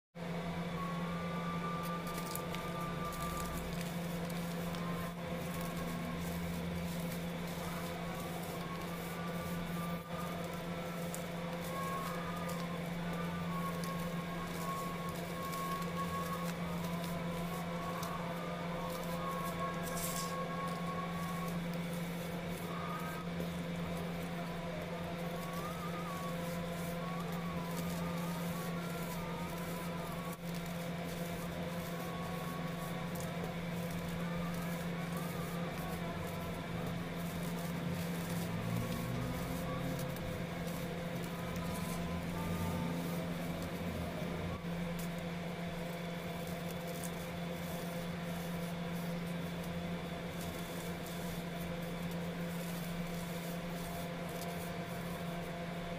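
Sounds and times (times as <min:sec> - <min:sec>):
low background hum: 0:00.1 - 0:55.9
powder sifting through fingers: 0:00.7 - 0:55.9
baking soda crunching by hand: 0:01.4 - 0:55.9.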